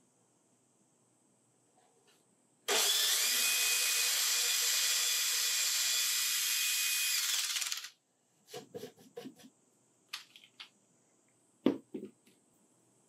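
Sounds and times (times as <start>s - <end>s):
cordless drill whining: 2.7s - 7.9s.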